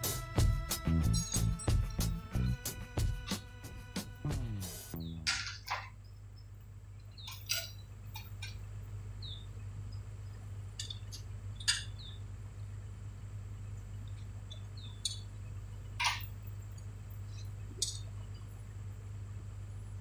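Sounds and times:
metallic clinks: 1.1s - 2.0s
bird chirps: 4.9s - 5.3s, 9.2s - 10.0s, 10.9s - 12.3s, 14.1s - 15.9s.

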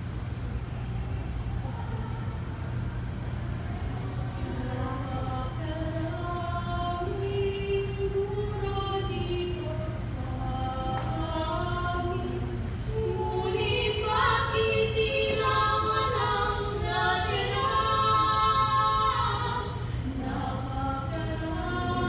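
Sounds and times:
choir singing a cappella: 4.4s - 22.0s.

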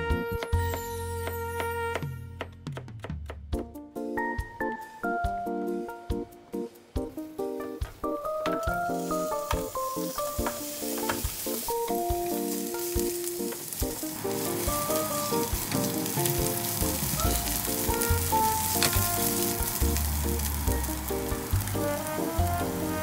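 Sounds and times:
background music: 0.0s - 23.0s
onions sizzling in oil: 8.8s - 23.0s
spatula stirring: 9.0s - 21.6s.

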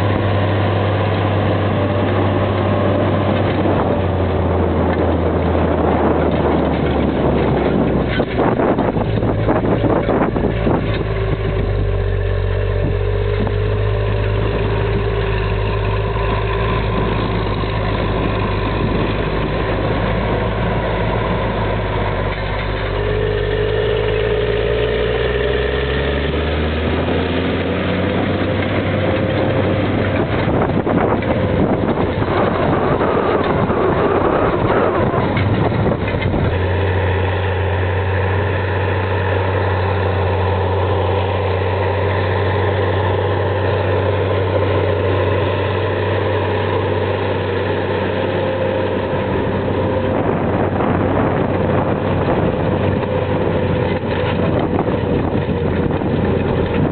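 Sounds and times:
tractor diesel engine running: 0.0s - 56.9s
cultivator discs rattling: 41.0s - 56.9s.

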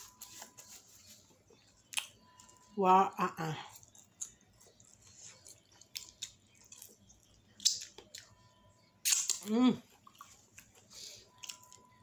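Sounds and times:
person chewing food: 0.0s - 2.7s, 3.7s - 12.0s.

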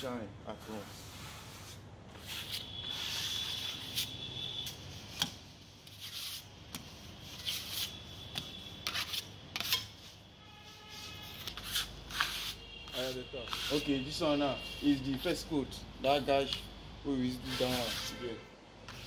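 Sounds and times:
metal scraper scraping wet paste: 7.2s - 10.0s, 11.2s - 14.0s.

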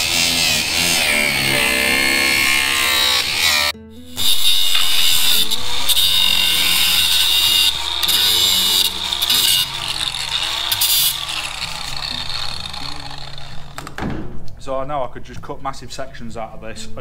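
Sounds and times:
angle grinder cutting: 0.0s - 14.0s.

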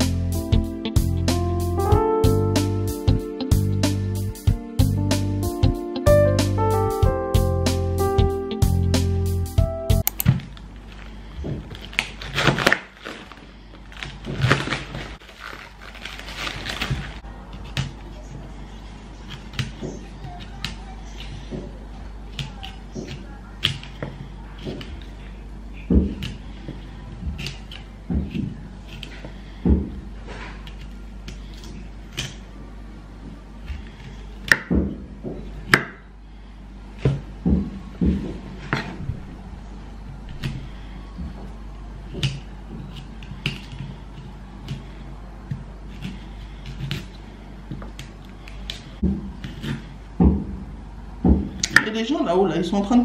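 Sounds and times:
knife cutting broccoli: 27.4s - 29.3s
heavy thuds: 37.1s - 39.4s, 49.0s - 49.5s, 50.1s - 51.6s
knife cutting on wooden board: 49.4s - 49.9s.

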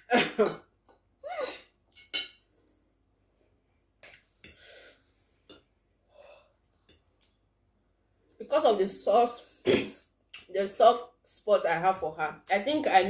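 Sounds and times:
people breathing while eating: 3.5s - 6.8s.

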